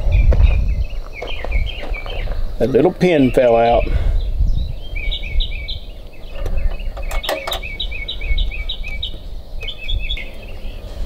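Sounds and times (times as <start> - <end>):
songbird chirping: 0.0 - 11.0.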